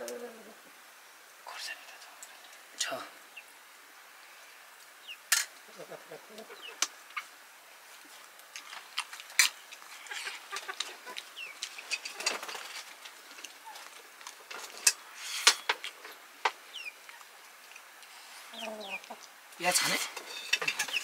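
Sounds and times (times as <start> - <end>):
chickens clucking and chirping: 5.0 - 7.4, 9.4 - 17.5, 18.1 - 21.0
clinks on steel plates: 20.0 - 21.0.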